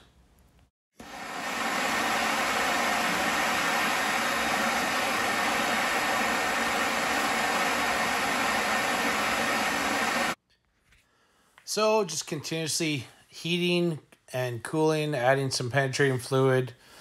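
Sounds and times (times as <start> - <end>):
gas torch hissing: 1.0 - 10.4.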